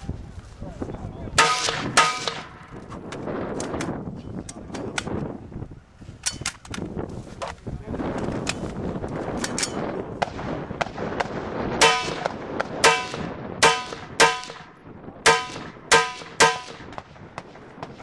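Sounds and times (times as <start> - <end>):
rifle gunshots: 1.4 - 2.7, 10.2 - 18.0.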